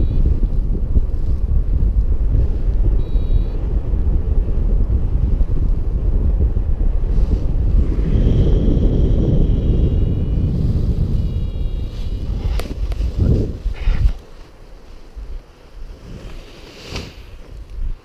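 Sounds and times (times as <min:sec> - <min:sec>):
wind buffeting microphone: 0:00.0 - 0:18.0
faint high steady tones: 0:08.1 - 0:13.0.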